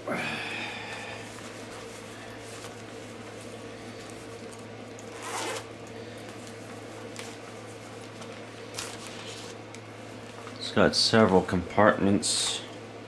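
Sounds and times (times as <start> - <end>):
steady low hum: 0.0 - 13.0
zipper swish: 5.1 - 5.7.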